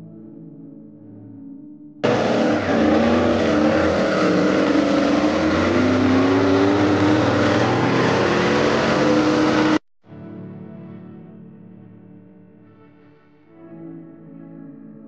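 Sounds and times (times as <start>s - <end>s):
truck engine at high revs: 2.0s - 9.8s
tyres spinning on pavement: 2.0s - 9.8s.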